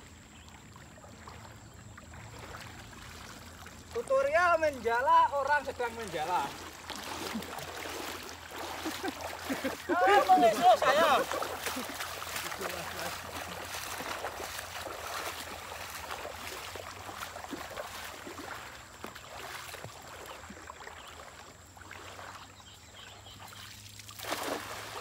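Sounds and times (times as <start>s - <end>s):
river water sloshing and trickling: 0.0s - 25.0s
cast net splashing on water: 5.4s - 22.5s, 23.4s - 25.0s.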